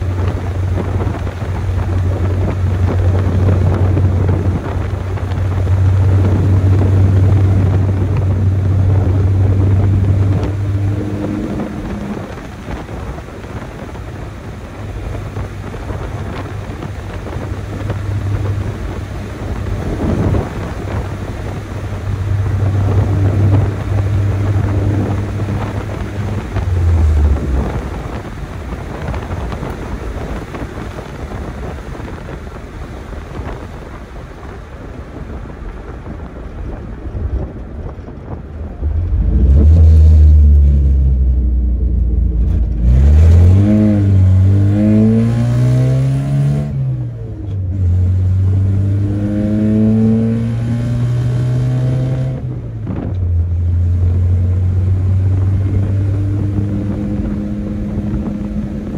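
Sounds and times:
pickup engine drone under load: 0:00.0 - 0:58.9
road and wind noise: 0:00.0 - 0:58.9.

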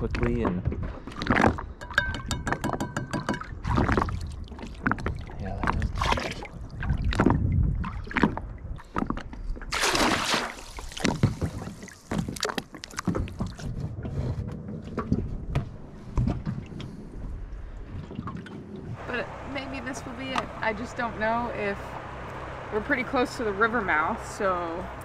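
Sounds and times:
knocks and clatters: 0:00.0 - 0:04.0
trap splashing into water: 0:09.7 - 0:11.4.

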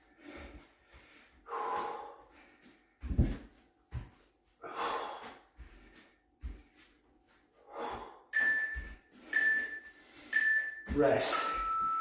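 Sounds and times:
person breathing hard: 0:00.0 - 0:03.2, 0:04.5 - 0:10.5
dull thuds on floor: 0:03.0 - 0:04.1
timer beeps: 0:08.3 - 0:12.0.

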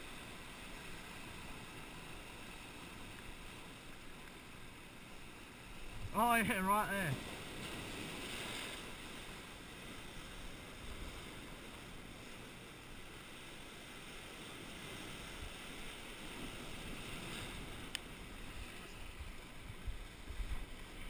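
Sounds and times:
surf breaking on rocks: 0:05.8 - 0:21.0.

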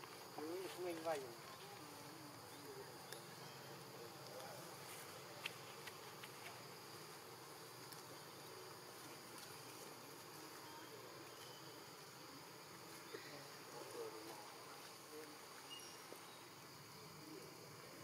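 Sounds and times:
forest insects droning: 0:00.0 - 0:18.0.

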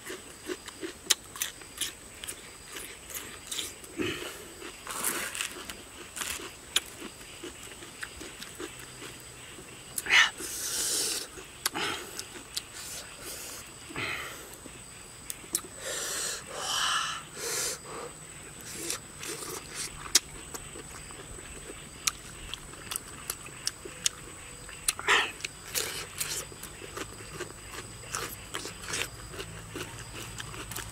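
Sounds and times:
breathy exhales: 0:12.8 - 0:14.6, 0:15.8 - 0:18.2
wet mouth clicks and smacks: 0:15.3 - 0:15.7.

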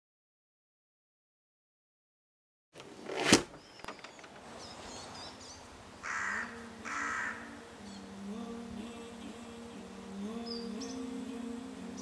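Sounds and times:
woodland ambience: 0:02.8 - 0:12.0
low held music tones: 0:04.6 - 0:12.0
crow cawing: 0:06.0 - 0:07.6.

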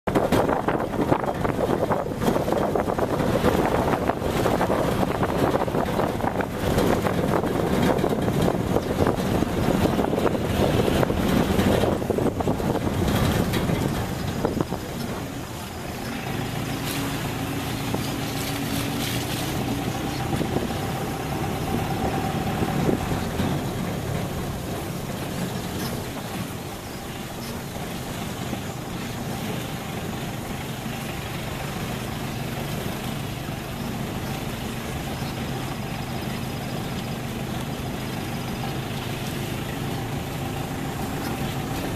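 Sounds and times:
vehicle driving on dirt track: 0:00.0 - 0:41.9
wind on microphone: 0:00.1 - 0:30.2.

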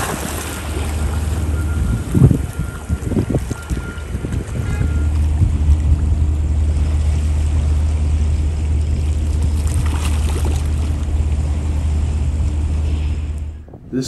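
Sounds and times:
ship engines droning: 0:00.0 - 0:14.0.

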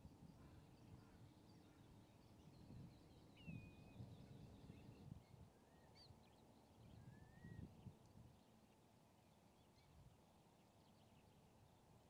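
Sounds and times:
whistled bird calls: 0:07.0 - 0:07.7.

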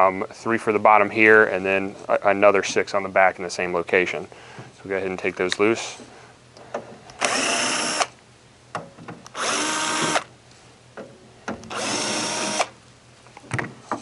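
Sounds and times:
power drill motor whine: 0:07.2 - 0:08.2, 0:09.4 - 0:10.3, 0:11.7 - 0:12.8.

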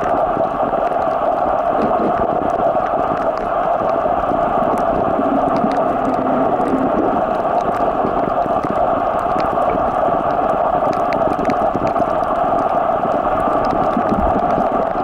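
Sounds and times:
faint underwater clicks: 0:00.0 - 0:15.0
muffled underwater rushing: 0:00.0 - 0:15.0.

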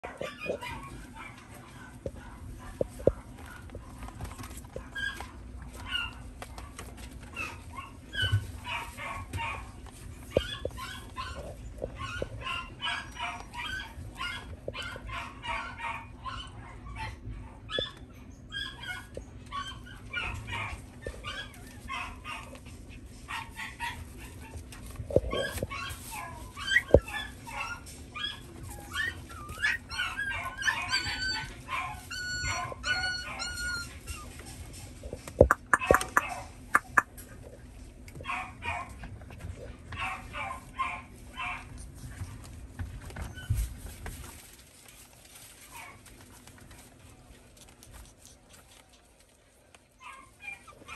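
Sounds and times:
puppy whines: 0:00.0 - 0:02.0, 0:04.2 - 0:22.6, 0:23.5 - 0:37.2, 0:43.0 - 0:44.0, 0:49.9 - 0:50.9
puppies yipping and whimpering: 0:00.0 - 0:37.2, 0:38.2 - 0:46.9, 0:47.6 - 0:50.9.

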